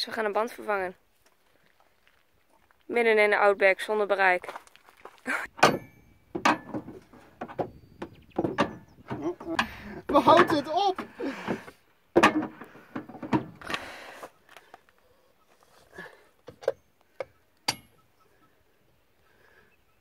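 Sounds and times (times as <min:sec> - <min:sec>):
lug wrench metallic clinks: 0:17.7 - 0:18.0.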